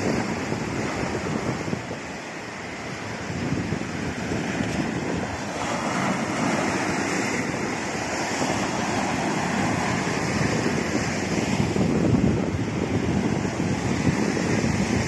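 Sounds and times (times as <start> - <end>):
waves breaking on rocky shore: 0.0 - 15.0
wind buffeting microphone: 0.0 - 15.0.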